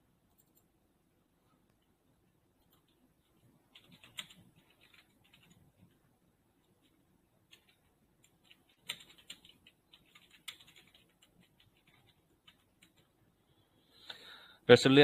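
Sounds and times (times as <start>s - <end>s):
computer keyboard typing: 0.3s - 0.7s, 2.6s - 6.0s, 6.6s - 13.2s.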